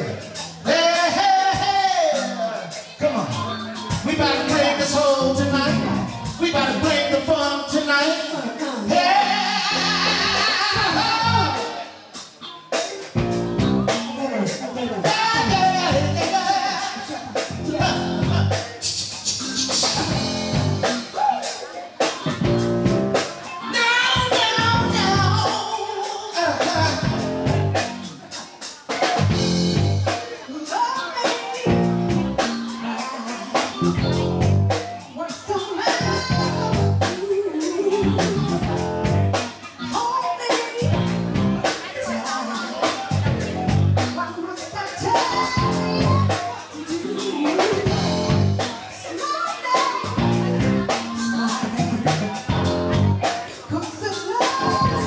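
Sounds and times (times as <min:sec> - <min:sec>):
bass: 0:00.0 - 0:49.1, 0:49.7 - 0:55.0
drum kit beat: 0:00.0 - 0:55.0
keyboard: 0:00.0 - 0:55.0
low backing notes: 0:01.8 - 0:08.4
woman singing into microphone: 0:08.9 - 0:11.8, 0:23.6 - 0:27.2, 0:35.2 - 0:38.5, 0:42.0 - 0:43.0, 0:44.2 - 0:50.3, 0:50.9 - 0:52.0, 0:53.6 - 0:55.0
person singing bending notes: 0:08.9 - 0:28.1, 0:28.9 - 0:55.0.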